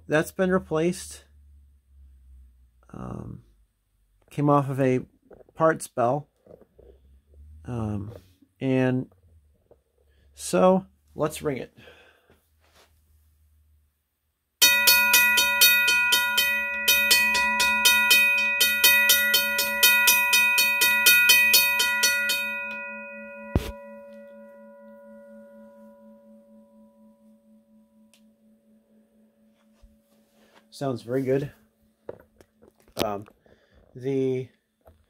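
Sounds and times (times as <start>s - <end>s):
railroad crossing bell ringing: 14.6s - 28.2s.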